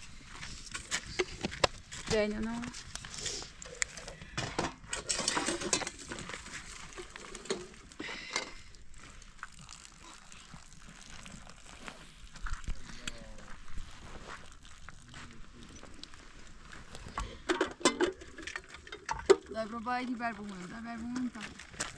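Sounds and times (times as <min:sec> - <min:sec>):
metal teapot clinking and scraping: 0:03.0 - 0:08.6, 0:17.2 - 0:19.7.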